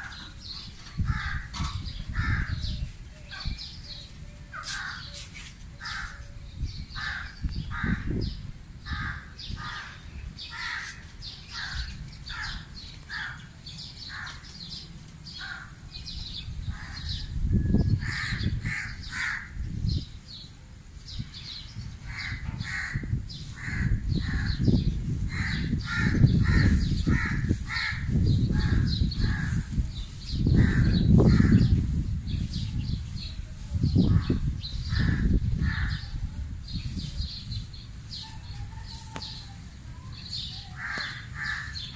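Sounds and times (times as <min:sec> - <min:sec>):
wind rumbling on microphone: 0:00.0 - 0:41.9
crows cawing: 0:01.0 - 0:02.7, 0:05.8 - 0:06.2, 0:07.0 - 0:08.2, 0:08.8 - 0:14.5, 0:15.3 - 0:15.8, 0:18.0 - 0:19.6, 0:22.1 - 0:24.6, 0:25.3 - 0:29.7, 0:30.6 - 0:31.7, 0:34.2 - 0:36.1, 0:40.8 - 0:41.9.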